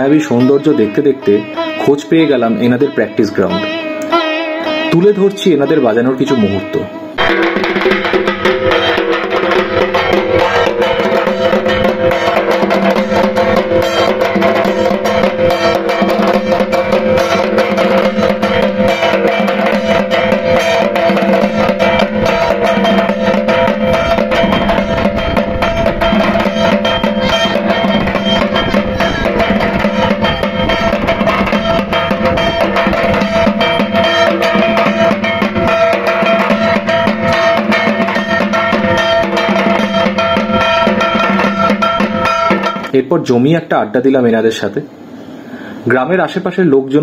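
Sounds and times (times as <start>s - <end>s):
metal gong ringing: 5.7s - 43.0s
barrel drums beaten fast: 7.2s - 42.9s.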